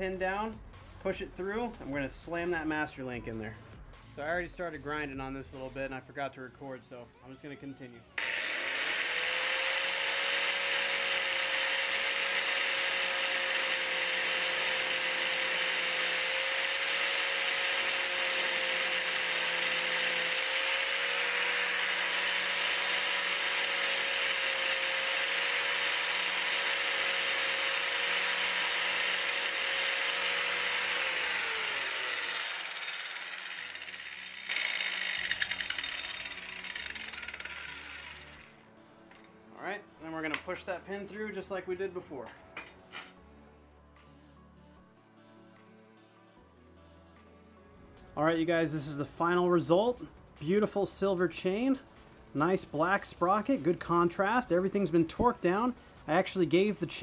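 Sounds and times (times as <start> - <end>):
grinder spinning down: 8.2 - 38.6
angle grinder grinding metal: 8.2 - 39.3, 42.6 - 43.2.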